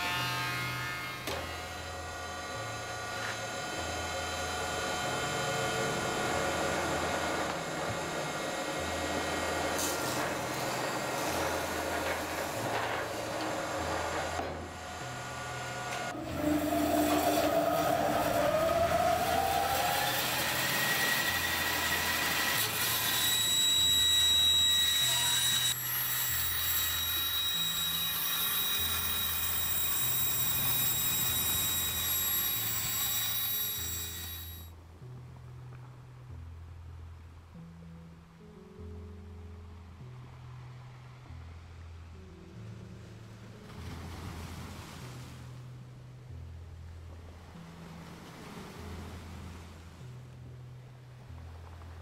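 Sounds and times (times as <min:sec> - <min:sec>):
band saw cutting board: 0:00.0 - 0:34.7
electric motor whine: 0:01.1 - 0:34.7.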